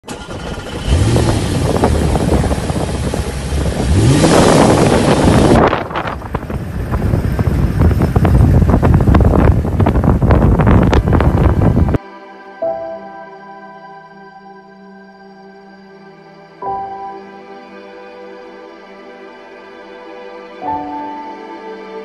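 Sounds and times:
driving noise with wind rush: 0:00.1 - 0:12.0
vehicle engine revving: 0:00.1 - 0:12.0
wind buffeting the microphone: 0:00.4 - 0:12.0.

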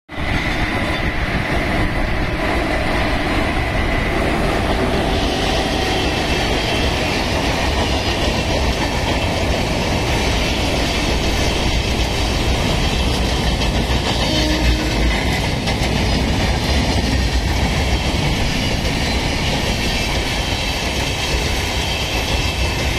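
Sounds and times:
thin high locomotive whine: 0:00.1 - 0:22.9
train wheels rumbling on rails: 0:00.1 - 0:22.9
wagons clickety-clack: 0:05.4 - 0:22.9.

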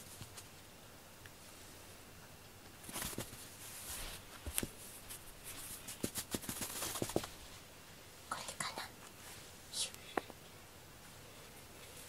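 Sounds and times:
cat toy rustling on floor mat: 0:02.8 - 0:07.6.

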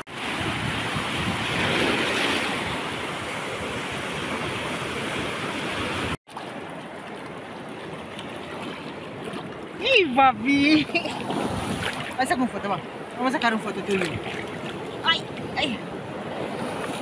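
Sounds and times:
waves breaking on rocky shore: 0:00.0 - 0:17.0.

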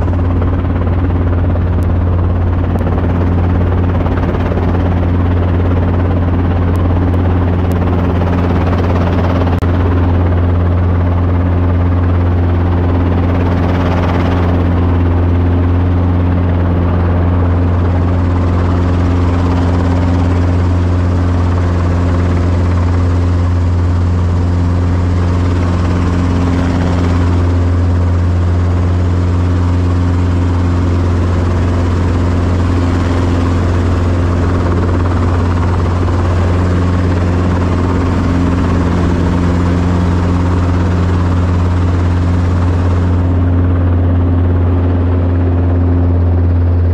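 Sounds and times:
helicopter rotor and engine: 0:00.0 - 0:46.9.

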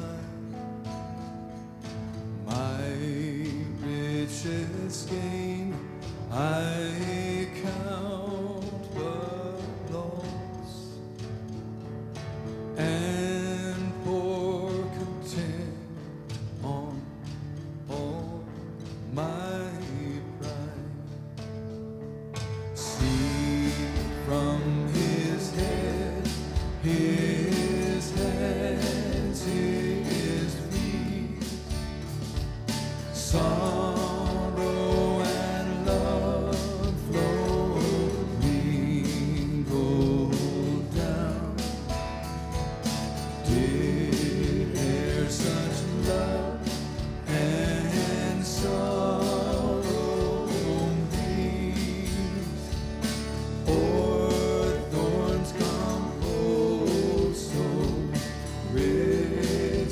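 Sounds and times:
band playing a slow hymn: 0:00.0 - 0:59.9
voices singing: 0:22.8 - 0:59.9.

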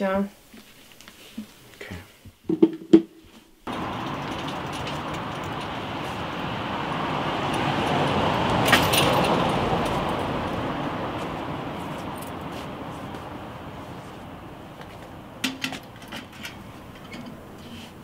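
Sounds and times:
car passing: 0:03.7 - 0:18.0
metallic click and rattle: 0:15.4 - 0:17.4.

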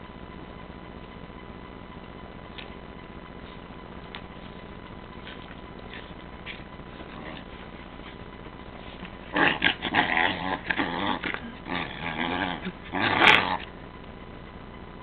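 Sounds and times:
small dog growling playfully: 0:05.2 - 0:13.7.

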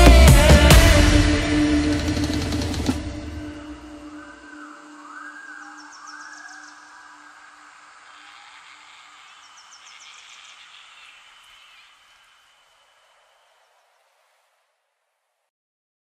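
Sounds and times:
electronic music noise wash: 0:00.0 - 0:14.4
faint high chirps: 0:03.4 - 0:14.4.

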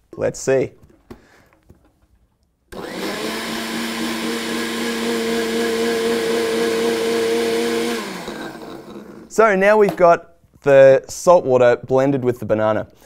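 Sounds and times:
blender motor whining: 0:02.7 - 0:09.3.

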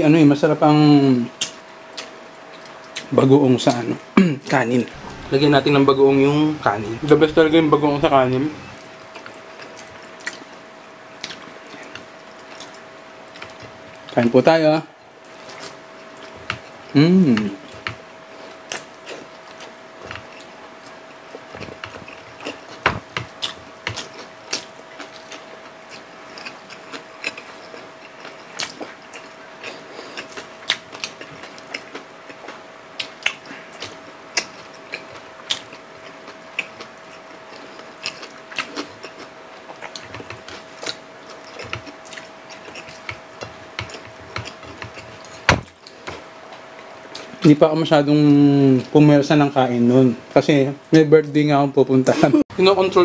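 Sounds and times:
people chewing wetly: 0:01.4 - 0:03.1, 0:08.6 - 0:14.2, 0:15.2 - 0:47.5.

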